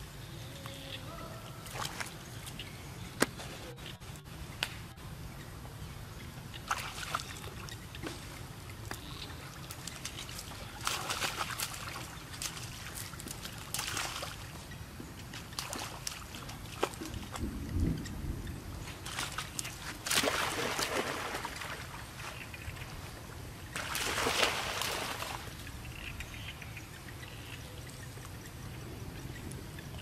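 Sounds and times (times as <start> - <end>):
water splashing: 1.6 - 2.6, 6.5 - 17.6, 18.8 - 26.2.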